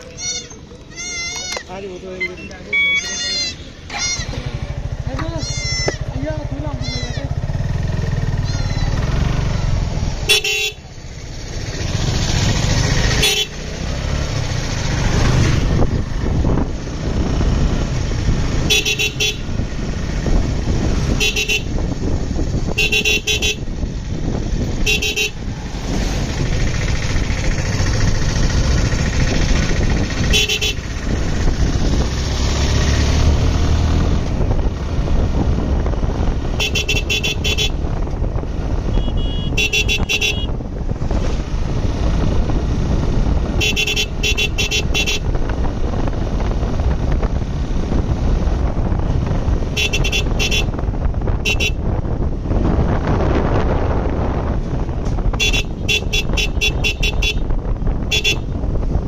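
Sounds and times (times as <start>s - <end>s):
motorcycle engine: 0.0s - 59.0s
motorcycle horn short beeps: 2.2s - 3.1s, 10.3s - 10.8s, 18.6s - 19.5s, 21.2s - 21.8s, 22.8s - 23.6s, 24.9s - 25.4s, 30.3s - 30.8s, 36.5s - 37.8s, 38.9s - 40.6s, 43.5s - 45.3s, 49.7s - 50.8s, 51.4s - 51.9s, 55.3s - 58.6s
wind rushing: 11.0s - 18.7s, 19.4s - 36.6s, 37.7s - 44.2s, 44.8s - 59.0s.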